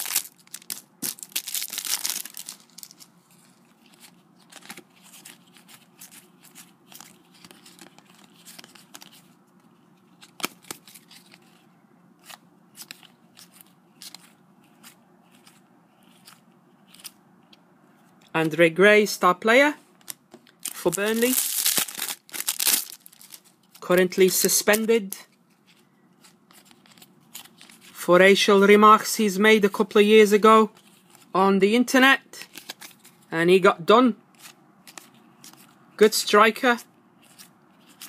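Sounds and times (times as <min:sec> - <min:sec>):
foil packet tearing and crinkling: 0:00.0 - 0:03.1, 0:20.6 - 0:23.5
cards rustling: 0:00.0 - 0:18.3, 0:20.0 - 0:28.0, 0:32.4 - 0:33.3, 0:34.3 - 0:35.8, 0:36.7 - 0:38.0.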